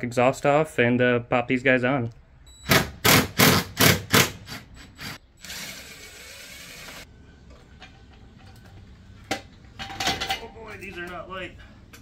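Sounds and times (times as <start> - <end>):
power tool running: 5.0 - 7.0.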